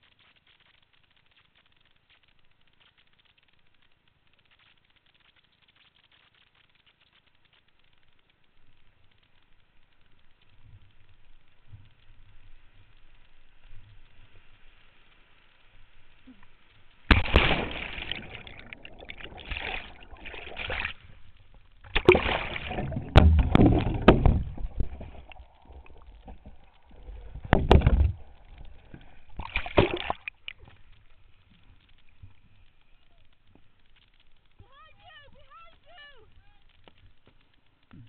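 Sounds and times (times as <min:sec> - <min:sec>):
water splashing around kayak: 0:17.0 - 0:31.5.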